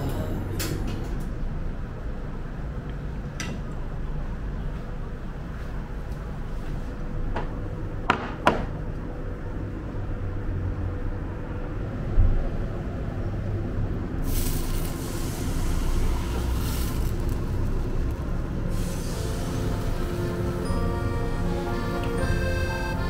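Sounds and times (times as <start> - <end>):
steady low rumble: 8.7 - 23.0
batter sizzling in frying pan: 14.2 - 20.0.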